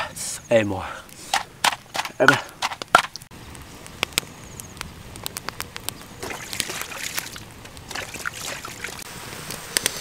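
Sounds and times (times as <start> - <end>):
sharp pops and crackles: 1.0 - 10.0
crabs sizzling in a wok: 9.0 - 10.0.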